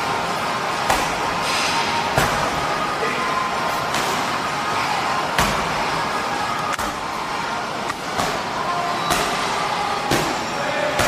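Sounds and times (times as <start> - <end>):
steady background noise: 0.0 - 11.0.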